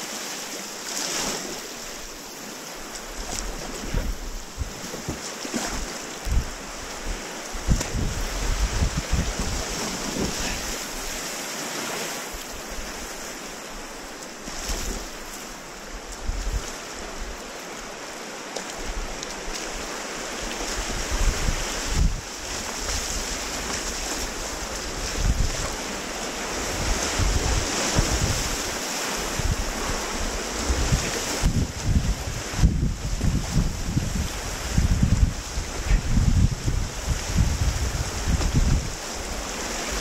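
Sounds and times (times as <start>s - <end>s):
river rapid rushing: 0.0s - 40.0s
wind buffeting microphone: 3.1s - 5.2s, 6.2s - 11.2s, 20.5s - 40.0s.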